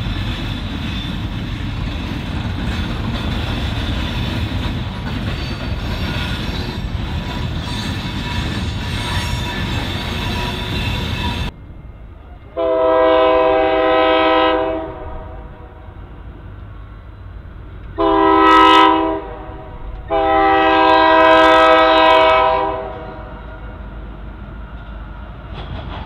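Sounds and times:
low rumble of train: 0.0 - 26.0
train air horn blowing: 12.6 - 16.0, 18.0 - 23.5.

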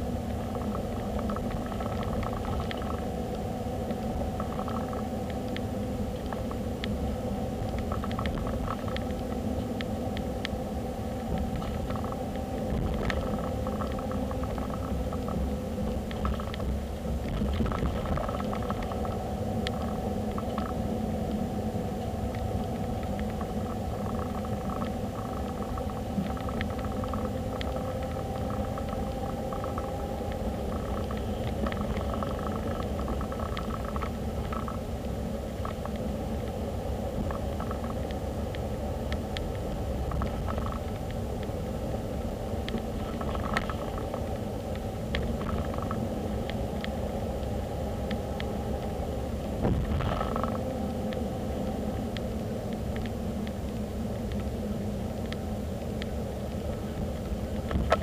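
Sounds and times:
car road and engine rumble: 0.0 - 58.0
faint whine: 0.0 - 58.0
faint clicks: 0.5 - 3.1, 7.6 - 10.6, 11.2 - 21.4, 22.0 - 34.8, 42.2 - 49.0, 49.6 - 54.5, 55.2 - 58.0.

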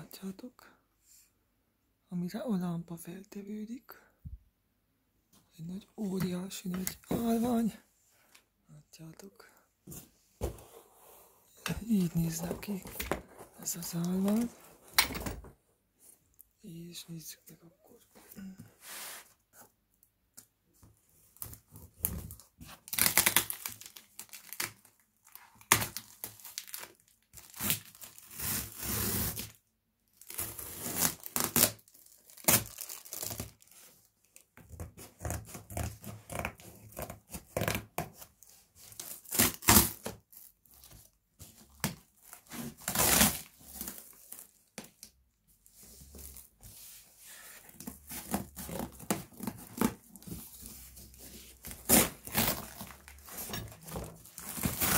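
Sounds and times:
tape and cardboard tearing: 22.8 - 24.8, 25.6 - 29.6, 30.2 - 33.6, 39.0 - 40.2, 41.9 - 44.4, 51.6 - 54.9.

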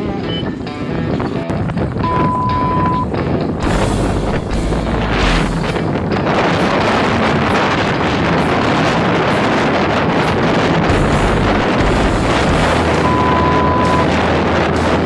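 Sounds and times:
road noise: 0.0 - 15.0
wind buffeting microphone: 0.0 - 15.0
short steady beep: 2.0 - 3.1, 12.9 - 14.1
motorcycle engine: 2.0 - 15.0.

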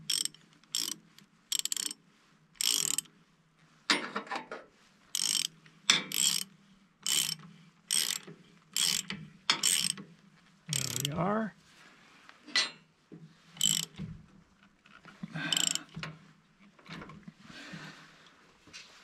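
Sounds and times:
ratchet wrench clicking: 0.0 - 2.0, 2.6 - 3.1, 5.2 - 10.0, 10.7 - 11.2, 13.6 - 13.9, 15.5 - 15.9.

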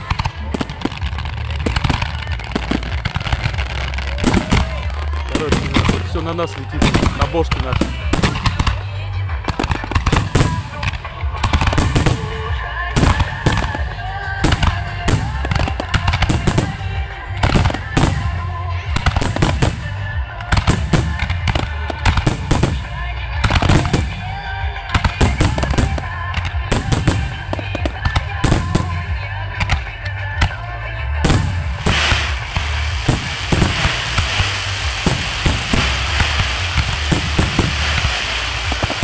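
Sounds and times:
fireworks bursting: 0.0 - 39.0
low rumble: 19.8 - 39.0.

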